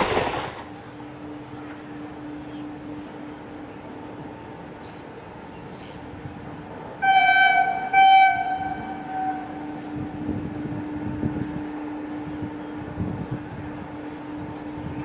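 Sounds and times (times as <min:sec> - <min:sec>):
freight train rumble: 0:00.0 - 0:15.0
locomotive horn blasts: 0:07.0 - 0:15.0.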